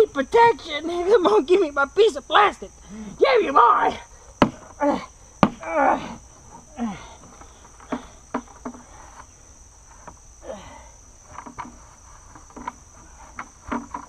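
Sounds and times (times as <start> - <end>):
high-pitched insect chorus: 0.0 - 14.0
short grunt: 4.8 - 7.2.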